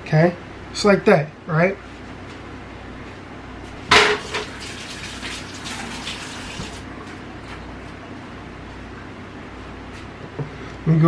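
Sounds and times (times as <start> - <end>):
metal pan clanking: 3.9 - 4.5.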